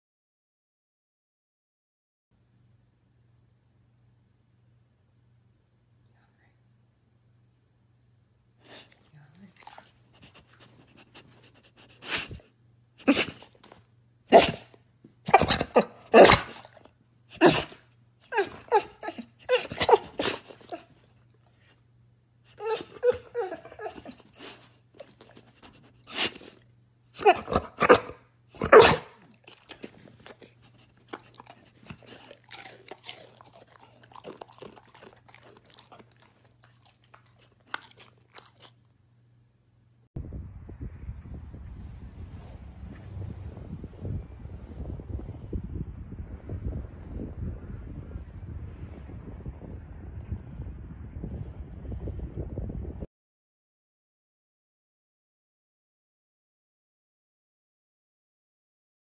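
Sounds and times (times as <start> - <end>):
dog barking: 14.3 - 14.7, 15.3 - 16.8, 17.4 - 20.9, 27.2 - 29.3.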